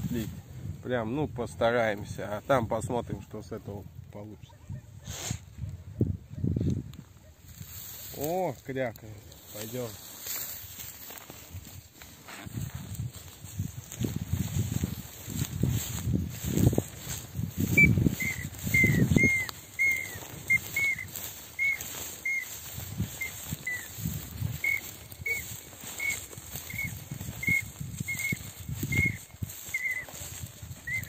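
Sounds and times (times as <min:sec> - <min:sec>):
duck call whistled notes: 0:17.6 - 0:30.2, 0:30.8 - 0:31.0.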